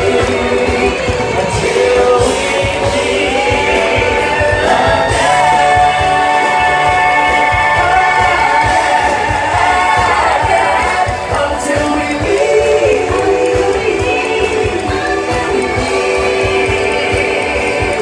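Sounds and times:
amplified backing music with beat: 0:00.0 - 0:18.0
group of people singing: 0:00.0 - 0:18.0.

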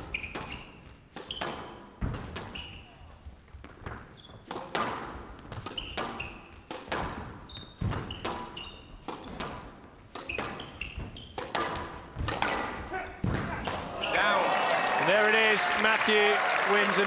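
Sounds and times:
shoes squeaking on court floor: 0:00.0 - 0:12.8
squash ball hitting rackets and walls: 0:00.0 - 0:14.0.

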